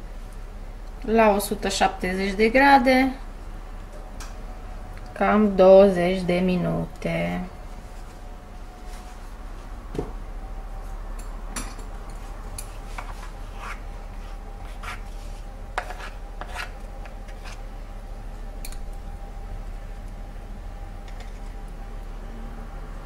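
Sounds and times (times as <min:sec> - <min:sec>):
steady low hum: 0:00.0 - 0:23.0
wooden spoon scraping glass dish: 0:12.9 - 0:17.6.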